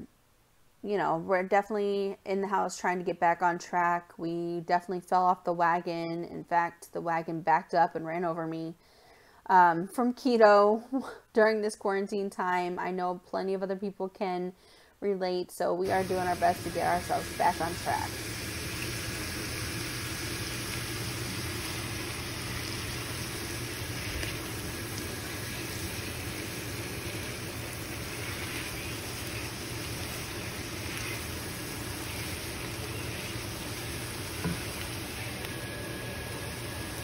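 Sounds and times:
food sizzling in a skillet: 15.8 - 37.0
spatula stirring: 25.1 - 33.4.

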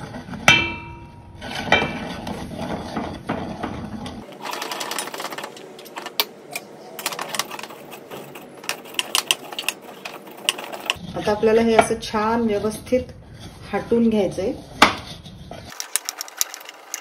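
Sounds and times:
spatula scraping and knocking in pan: 0.0 - 6.3, 7.0 - 17.0
spatula clanging against metal pan: 0.5 - 2.0.

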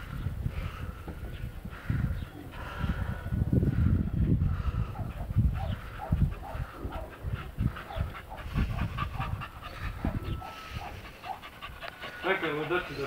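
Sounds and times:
dog panting: 4.5 - 13.0.

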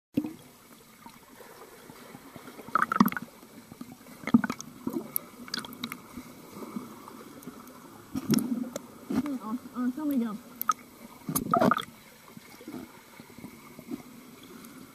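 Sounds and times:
muffled underwater swimming strokes: 0.2 - 14.9
underwater knocks and clicks: 2.7 - 3.3, 4.2 - 6.0, 8.1 - 9.4, 10.1 - 11.9.

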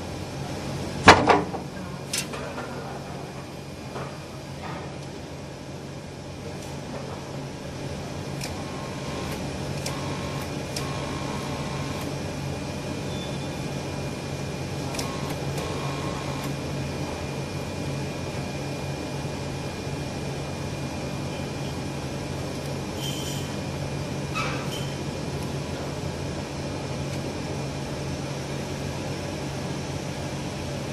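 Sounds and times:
inkjet printer humming: 6.4 - 13.0, 13.6 - 23.0.

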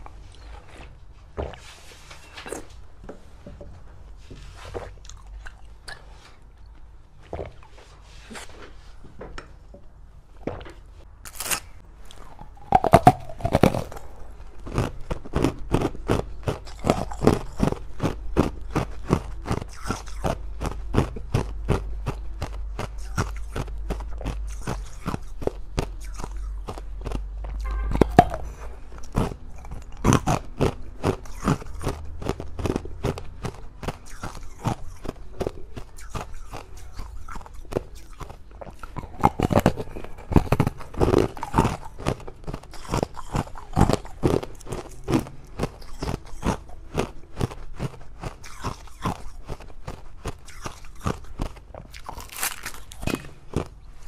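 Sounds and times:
crunchy chewing: 4.4 - 8.7, 11.2 - 54.0.

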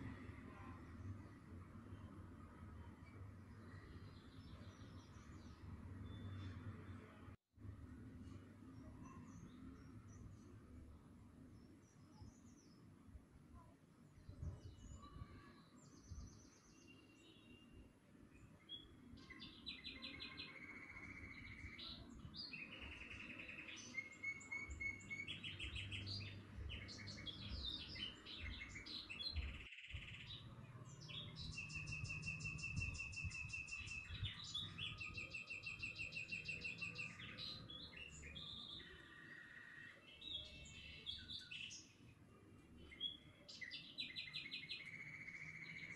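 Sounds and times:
songbird trilling and chirping: 18.4 - 42.0, 42.8 - 45.9.

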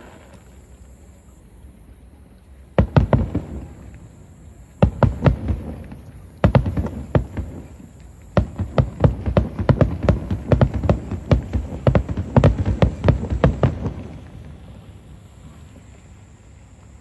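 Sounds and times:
firework shells bursting: 4.8 - 14.6.

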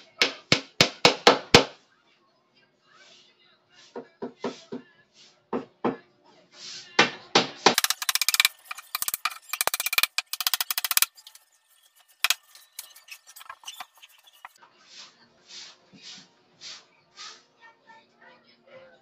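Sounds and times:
hammer driving nails into wood: 7.7 - 11.1, 12.2 - 14.4.

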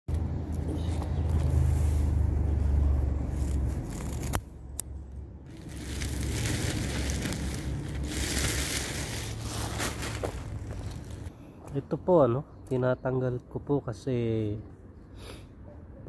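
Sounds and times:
grass rustling and tearing: 0.5 - 11.3
low rumble: 0.7 - 11.3.

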